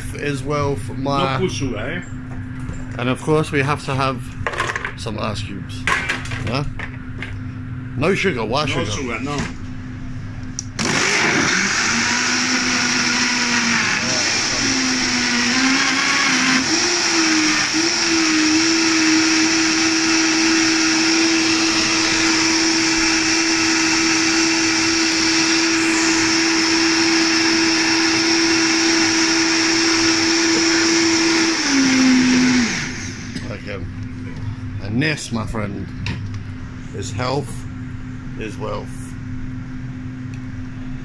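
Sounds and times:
blender running loud: 0:10.6 - 0:33.5.

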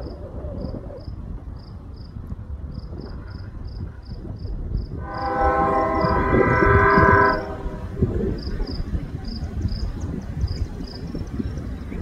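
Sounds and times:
insects chirping: 0:00.0 - 0:11.9
locomotive air horn: 0:05.0 - 0:08.1.

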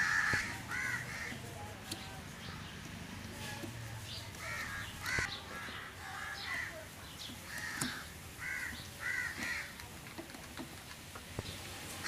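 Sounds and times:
birds calling: 0:00.0 - 0:10.6.

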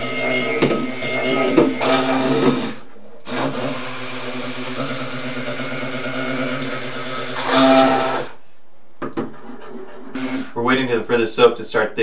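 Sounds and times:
immersion blender humming: 0:00.0 - 0:08.4, 0:10.2 - 0:10.6.

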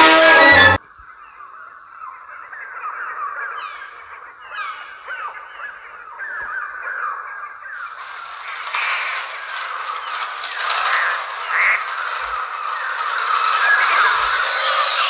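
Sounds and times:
flock of birds screeching: 0:04.5 - 0:15.0
harsh noisy rush: 0:07.8 - 0:15.0.

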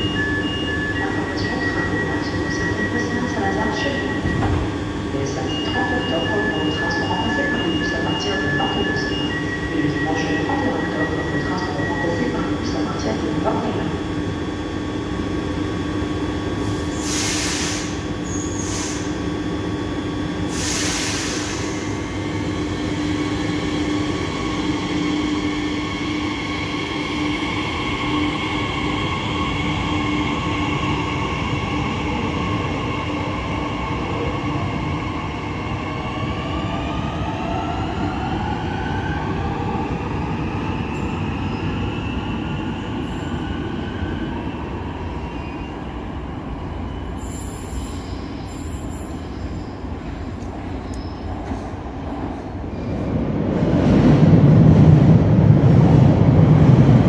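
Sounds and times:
wheels rumbling on rail: 0:48.8 - 0:57.0.

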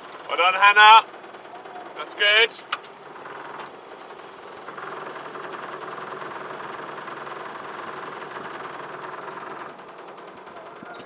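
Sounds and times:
outboard motor running: 0:03.0 - 0:11.0.

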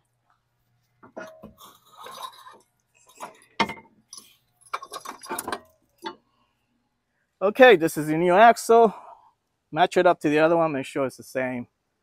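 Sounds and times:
metal clinking and scraping: 0:01.1 - 0:06.3.

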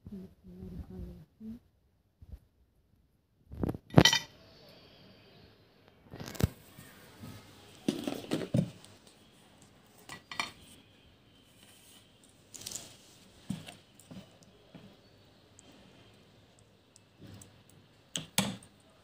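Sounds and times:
dishes and spoon clinking: 0:03.9 - 0:04.3, 0:10.1 - 0:10.6.

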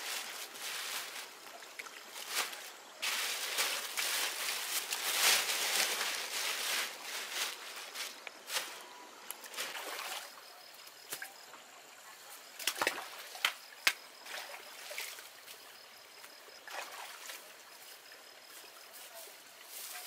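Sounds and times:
running water trickling: 0:00.0 - 0:08.6
water splashing in a stream: 0:00.0 - 0:08.7, 0:09.4 - 0:18.5.

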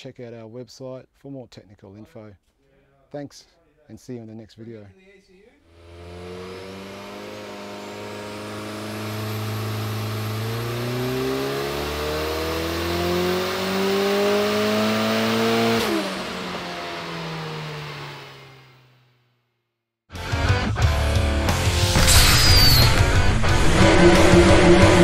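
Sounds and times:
engine revving on dyno: 0:05.7 - 0:19.0, 0:21.8 - 0:25.0
high turbo whistle: 0:21.7 - 0:25.0.

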